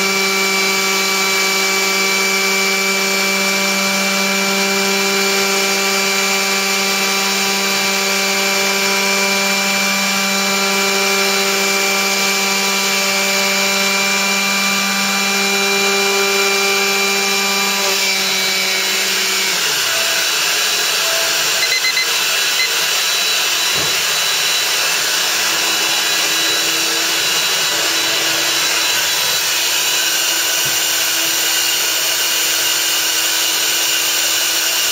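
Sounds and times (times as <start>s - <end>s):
power tool motor whining: 0.0s - 34.9s
short high beeps: 21.6s - 22.8s.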